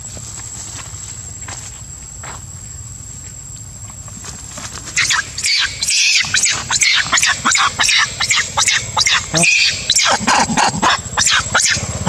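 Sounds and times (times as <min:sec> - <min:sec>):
monkeys scuffling: 0:04.0 - 0:10.2.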